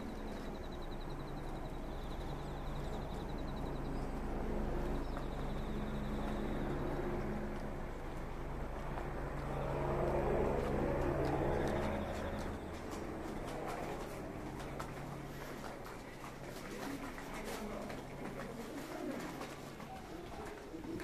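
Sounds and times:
machinery hum: 0.0 - 15.6.

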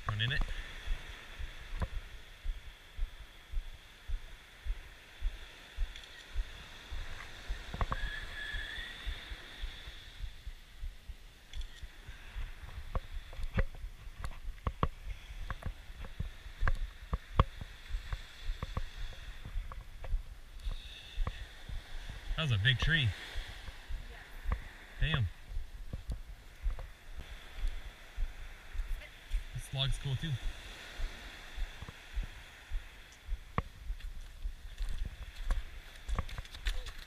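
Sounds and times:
footsteps on sand: 0.1 - 8.1.

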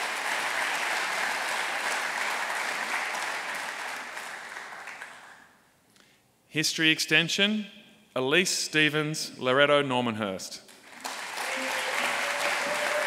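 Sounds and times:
audience applauding: 0.0 - 5.5, 10.7 - 13.0.

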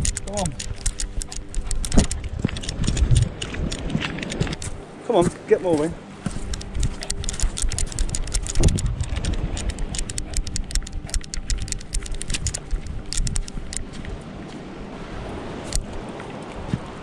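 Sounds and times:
camera mount clicking and rattling: 0.0 - 4.8, 6.4 - 13.9, 15.7 - 15.9
wind and rubbing on microphone: 0.0 - 17.0.

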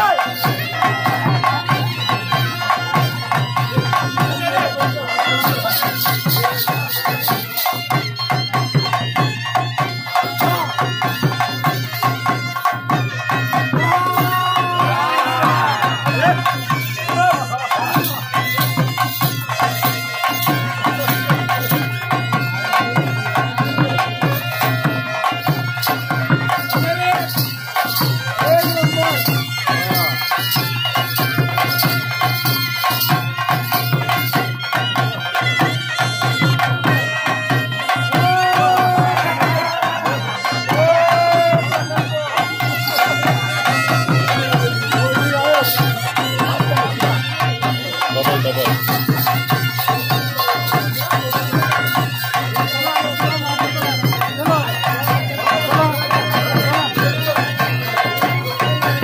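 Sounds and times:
fast hand drum playing: 0.0 - 59.0
folk music: 0.0 - 59.0.

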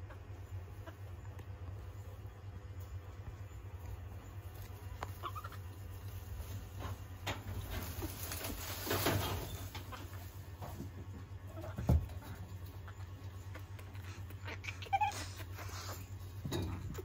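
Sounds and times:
steady low hum: 0.0 - 17.0
leaves rustling: 4.4 - 10.6.

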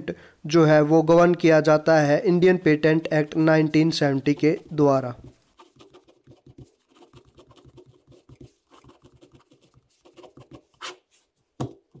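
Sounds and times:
pen scratching on paper: 4.2 - 11.3.

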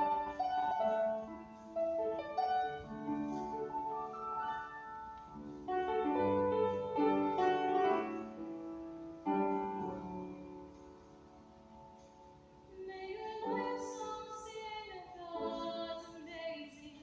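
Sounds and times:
piano playing slow chords: 0.0 - 12.7.

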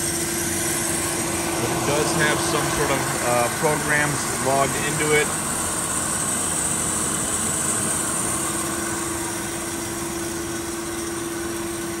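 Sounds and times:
bandsaw machine hum: 0.0 - 12.0
constant tone: 0.6 - 9.6.

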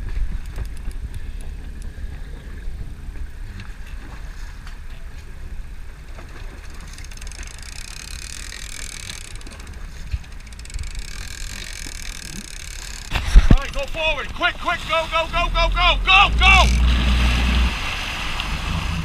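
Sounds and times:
wind rumble on microphone: 0.0 - 6.2, 13.1 - 14.4
faint clicks: 0.2 - 2.3, 6.6 - 14.4.

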